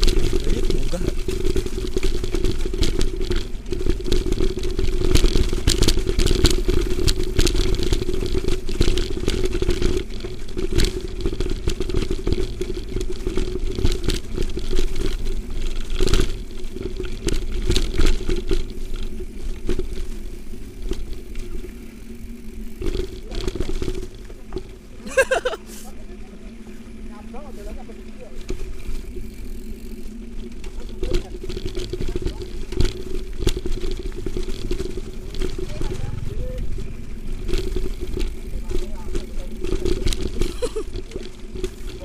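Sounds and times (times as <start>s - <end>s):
steady hum: 0.0s - 42.0s
wind rumble on microphone: 29.0s - 42.0s.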